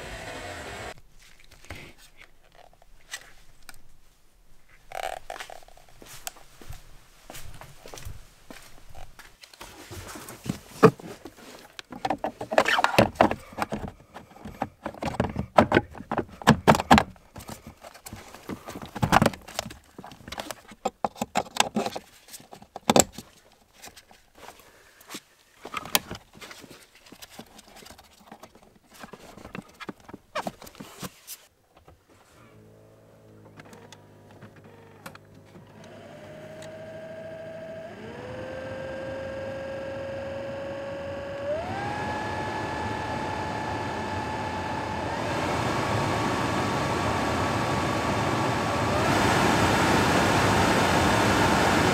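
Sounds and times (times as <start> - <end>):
plastic knocks clicks and scrapes: 11.8 - 24.1.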